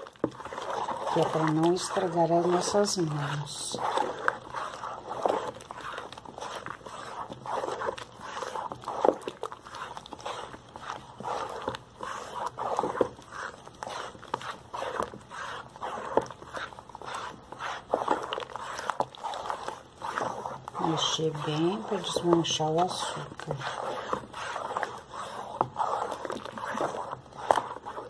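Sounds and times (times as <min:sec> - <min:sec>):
wooden spoon scraping basin: 0:00.0 - 0:28.0.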